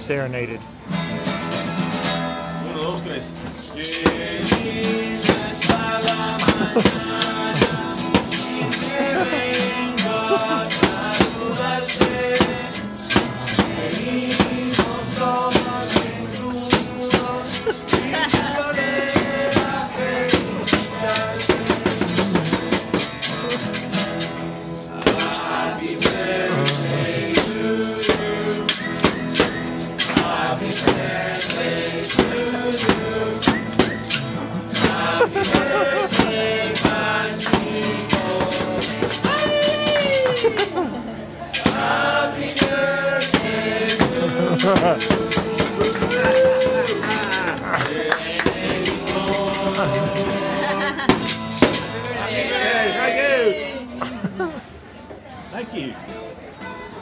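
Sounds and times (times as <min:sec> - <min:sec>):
acoustic guitar strumming: 0:00.0 - 0:53.9
man singing: 0:03.6 - 0:23.6, 0:25.0 - 0:40.9, 0:41.6 - 0:51.1.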